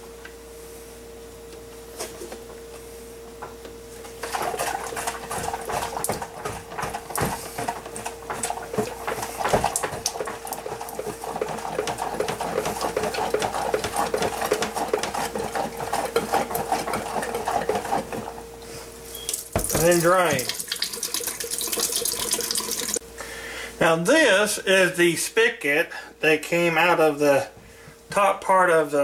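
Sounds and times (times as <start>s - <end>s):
water sloshing in rattling tank: 4.1s - 18.4s, 19.2s - 23.0s.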